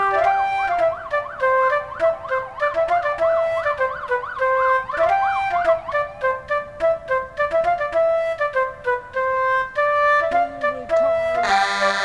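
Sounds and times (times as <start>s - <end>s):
loud vehicle siren: 0.0s - 7.6s, 11.1s - 12.0s
music melody: 0.0s - 12.0s.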